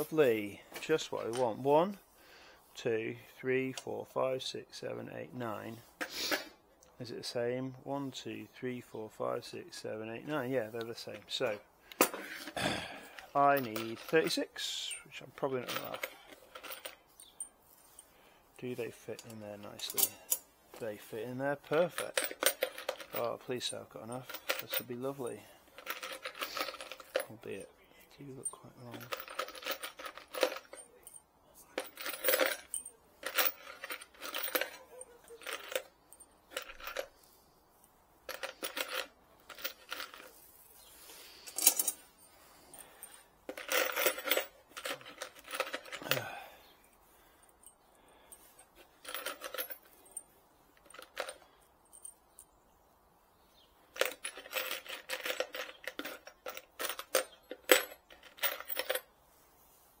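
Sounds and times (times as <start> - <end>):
metal screws rattling in plastic tub: 11.0 - 18.0, 21.1 - 27.6, 28.4 - 31.2, 31.8 - 37.1, 38.3 - 40.4, 42.7 - 46.5, 48.4 - 52.1, 53.9 - 59.1.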